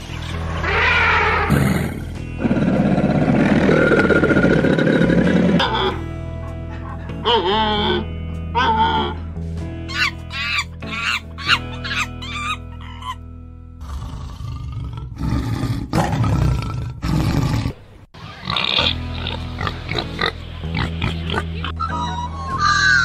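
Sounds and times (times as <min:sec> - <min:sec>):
background music: 0:00.0 - 0:23.0
tiger growling: 0:01.4 - 0:06.0, 0:13.8 - 0:17.8
macaque squeaking: 0:09.9 - 0:13.2.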